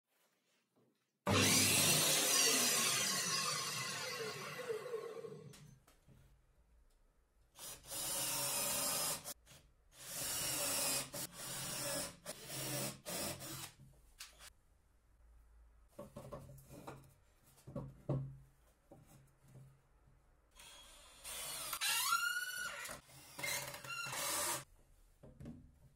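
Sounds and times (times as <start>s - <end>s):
cordless drill driving screws: 1.3s - 5.4s, 7.6s - 9.4s, 10.0s - 13.8s, 20.6s - 24.6s
circular saw winding down: 1.3s - 5.5s.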